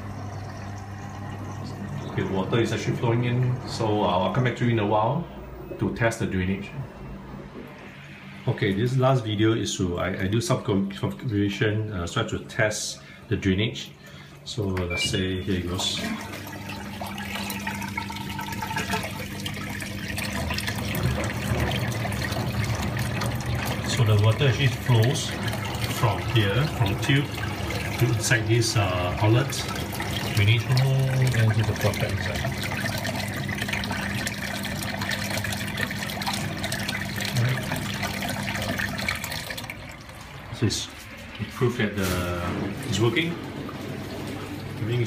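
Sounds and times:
water draining into pipe: 0:00.0 - 0:06.3, 0:13.8 - 0:45.0
washing machine low hum: 0:00.0 - 0:45.0.

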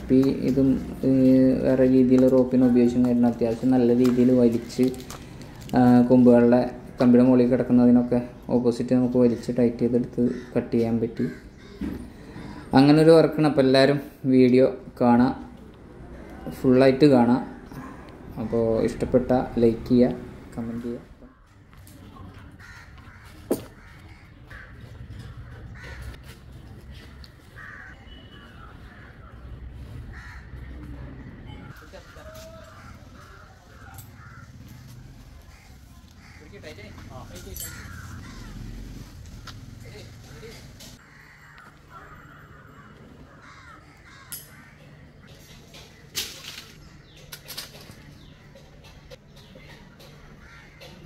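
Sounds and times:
birds calling harshly: 0:00.0 - 0:14.3, 0:15.4 - 0:51.0
crows cawing: 0:01.6 - 0:06.2, 0:10.0 - 0:12.9, 0:21.2 - 0:21.8, 0:22.4 - 0:51.0.

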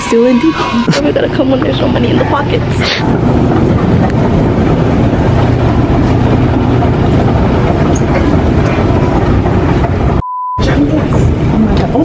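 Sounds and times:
escalator mechanical rumble: 0:00.0 - 0:12.0.

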